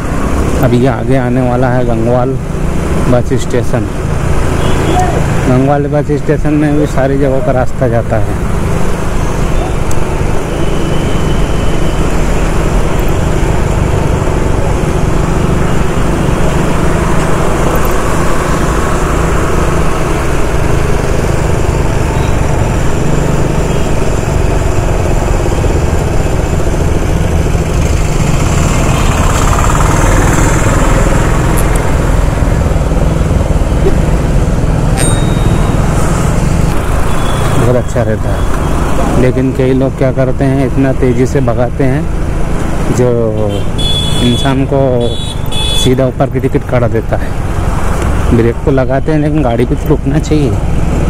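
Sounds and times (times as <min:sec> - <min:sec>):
road and traffic noise: 0:00.0 - 0:51.0
motorcycle engine running: 0:12.7 - 0:37.6.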